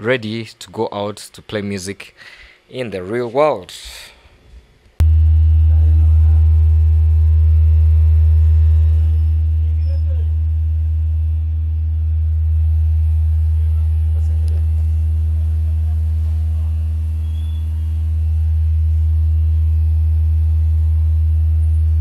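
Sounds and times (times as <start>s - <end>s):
low sine test tone: 5.0s - 22.0s.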